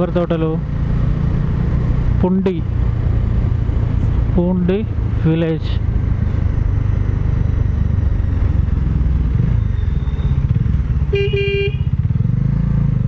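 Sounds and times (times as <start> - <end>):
motorcycle engine running: 0.0 - 13.0
road noise: 0.0 - 13.0
vehicle horn: 11.1 - 12.0.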